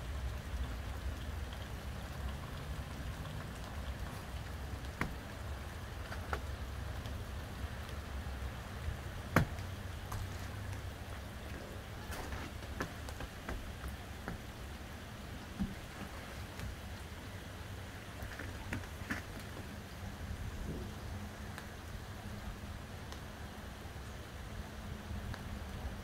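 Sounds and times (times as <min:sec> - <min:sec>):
light rain on snow: 0:00.0 - 0:26.0
drips and taps: 0:00.7 - 0:07.2, 0:09.3 - 0:14.7, 0:15.4 - 0:16.8.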